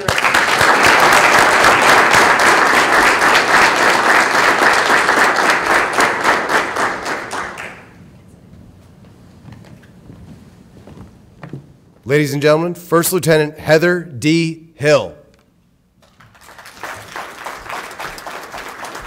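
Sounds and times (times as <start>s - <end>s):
audience applauding: 0.0s - 8.0s, 16.0s - 19.0s.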